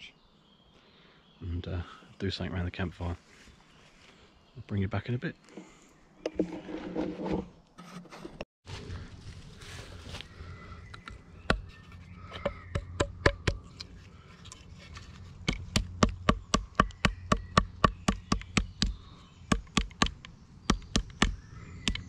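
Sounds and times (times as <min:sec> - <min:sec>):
stick beating stalk on stump: 0:12.4 - 0:13.7, 0:15.4 - 0:22.0.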